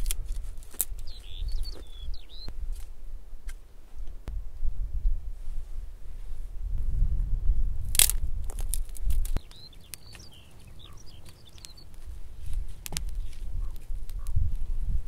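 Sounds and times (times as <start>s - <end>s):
twig fire crackling and popping: 0.0s - 1.8s, 7.8s - 14.6s.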